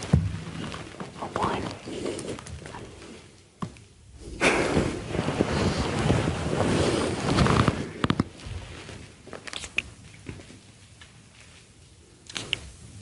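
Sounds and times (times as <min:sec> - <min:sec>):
bedding rustling: 0:00.0 - 0:03.3, 0:04.2 - 0:09.6.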